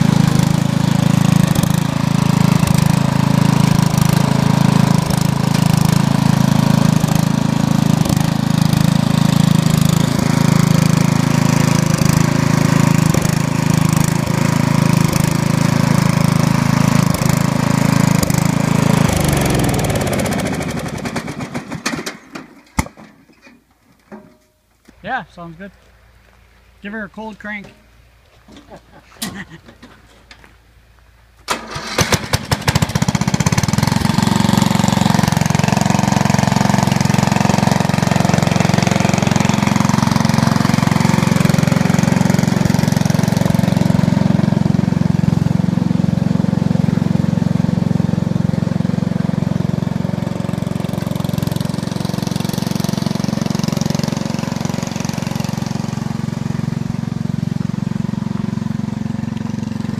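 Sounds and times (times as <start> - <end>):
lawn tractor engine running: 0.0 - 24.5, 27.0 - 59.9
starter cranking: 31.5 - 34.2.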